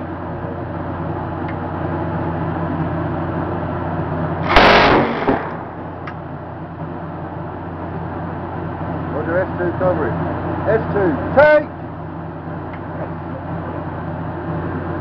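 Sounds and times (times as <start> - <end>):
steady low hum: 0.0 - 15.0
minigun firing burst: 4.4 - 6.0.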